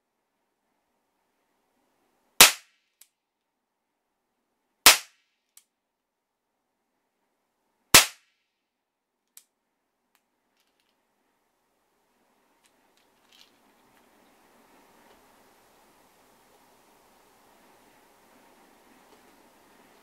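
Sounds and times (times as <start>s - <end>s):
cap gun shots: 2.4s - 2.7s, 4.9s - 5.2s, 8.0s - 8.3s.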